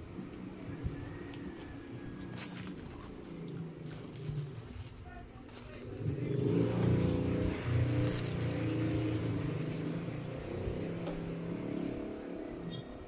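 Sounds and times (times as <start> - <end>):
engine droning: 0.0 - 12.8
paper wrapper rustling: 1.5 - 6.9, 7.7 - 8.9.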